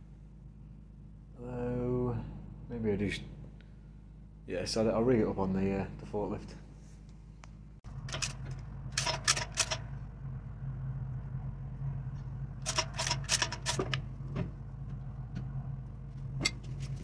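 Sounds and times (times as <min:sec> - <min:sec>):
low machine hum: 0:00.0 - 0:17.0
chain and hook rattling: 0:08.0 - 0:09.9, 0:12.6 - 0:14.0.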